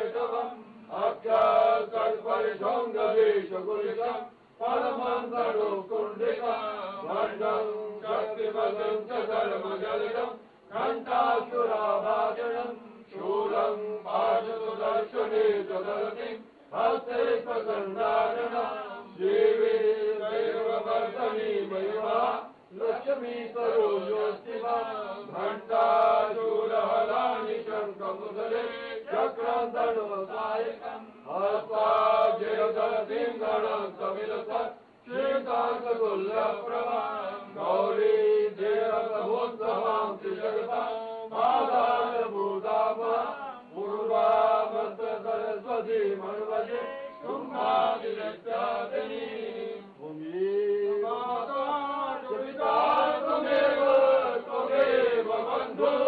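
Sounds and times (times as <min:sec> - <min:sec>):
man chanting: 0:17.0 - 0:56.0.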